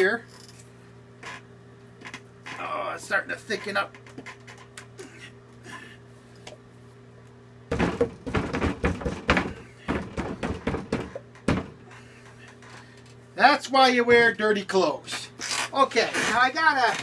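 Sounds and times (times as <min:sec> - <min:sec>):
cup knocking on wooden board: 0:07.7 - 0:11.7.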